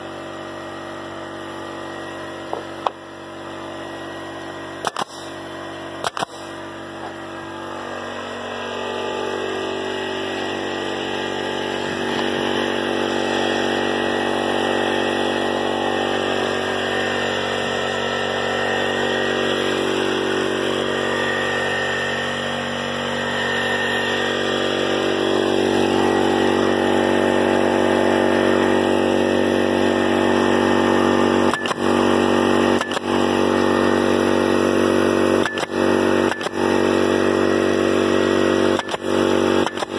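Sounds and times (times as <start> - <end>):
air compressor motor running: 0.0 - 39.9
nail gun firing: 4.8 - 7.2, 28.9 - 39.9.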